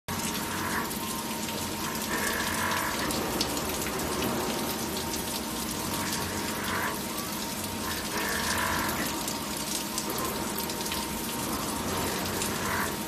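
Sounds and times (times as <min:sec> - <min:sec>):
coolant spraying and splashing: 0:00.1 - 0:13.0
machine whine: 0:00.1 - 0:13.0.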